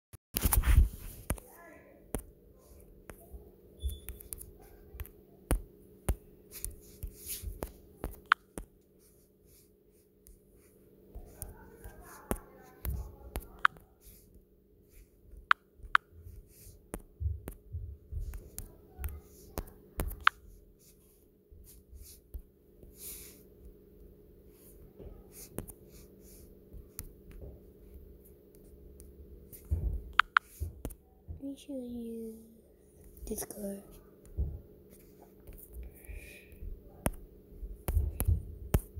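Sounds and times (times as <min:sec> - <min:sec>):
faint steady hum: 0:00.4 - 0:38.9
fingertips tapping phone touchscreen: 0:03.8 - 0:08.7, 0:11.3 - 0:14.2, 0:18.2 - 0:20.4, 0:29.6 - 0:31.0.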